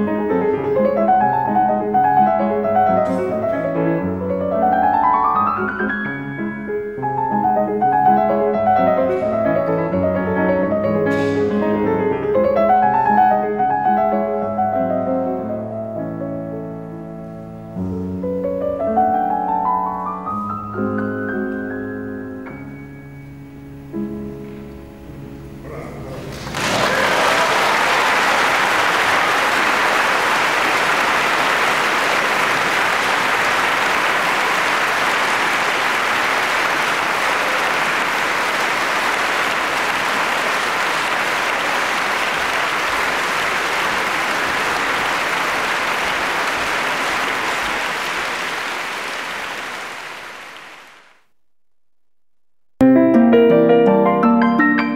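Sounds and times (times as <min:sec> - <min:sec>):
grand piano playing: 0:00.0 - 0:26.6, 0:52.8 - 0:54.9
audience applauding: 0:01.1 - 0:04.0, 0:26.2 - 0:51.3.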